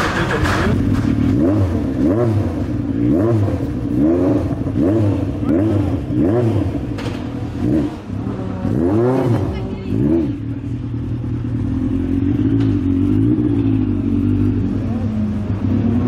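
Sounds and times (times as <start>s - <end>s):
race car engine revving: 0.0s - 16.0s.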